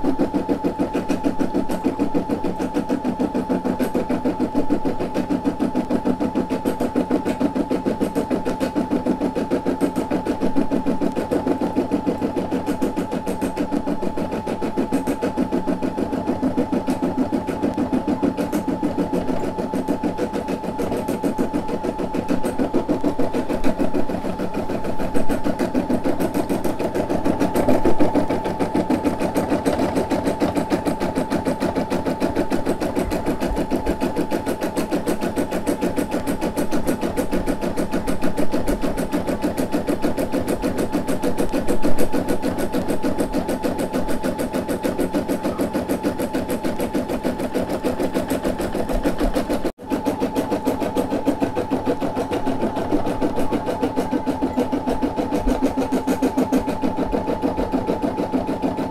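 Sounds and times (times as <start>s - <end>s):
embroidery machine needle clatter: 0.0s - 58.9s.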